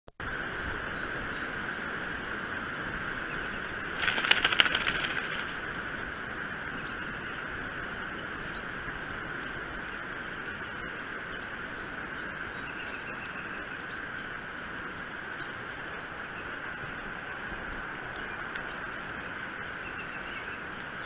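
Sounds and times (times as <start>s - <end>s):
rain and wind hiss: 0.2s - 21.0s
eagle flapping on nest: 3.9s - 5.7s.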